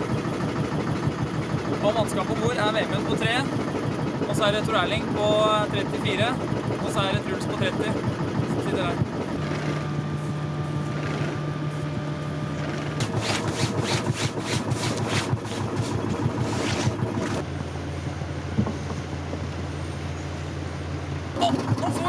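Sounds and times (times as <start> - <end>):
boat engine humming: 0.0 - 22.0.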